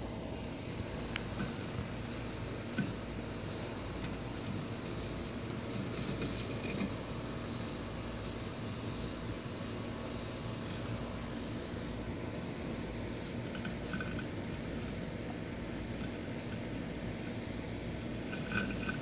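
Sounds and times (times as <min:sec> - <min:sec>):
insects chirping: 0:00.0 - 0:19.0
robotic lawn mower humming: 0:00.0 - 0:19.0.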